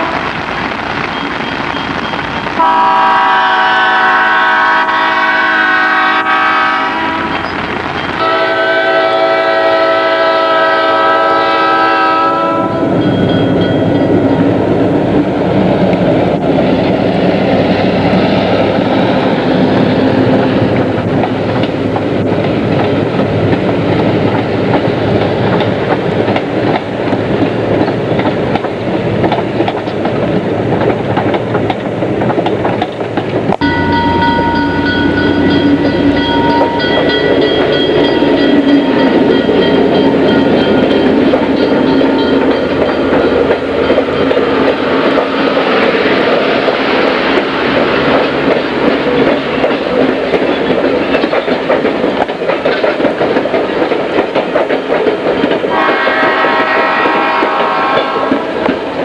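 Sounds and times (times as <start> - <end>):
locomotive horn: 0.0 - 0.4, 2.6 - 7.6, 8.2 - 13.0, 55.7 - 58.7
passing train: 0.0 - 59.0
low locomotive rumble: 12.6 - 53.8.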